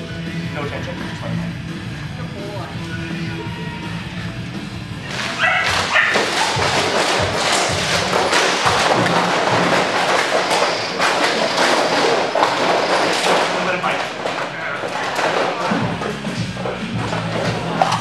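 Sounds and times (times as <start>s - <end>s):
background music: 0.0s - 18.0s
thuds: 5.1s - 18.0s.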